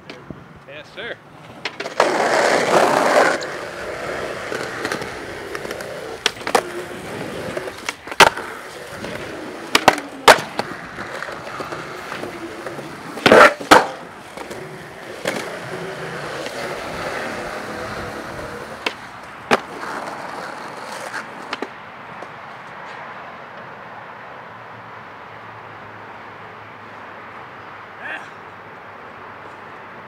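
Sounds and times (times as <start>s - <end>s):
background noise: 0.0s - 30.0s
skateboard rolling on pavement: 0.0s - 30.0s
skateboard clacks: 1.4s - 23.8s.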